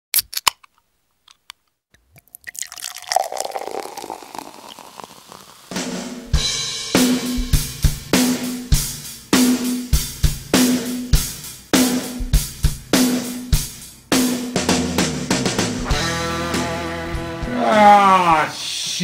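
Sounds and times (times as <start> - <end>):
drum kit: 5.7 - 19.0.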